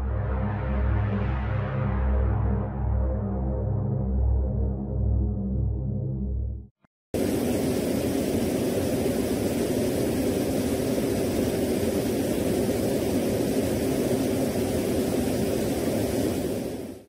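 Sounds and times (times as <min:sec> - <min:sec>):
steady low drone: 0:00.0 - 0:06.7.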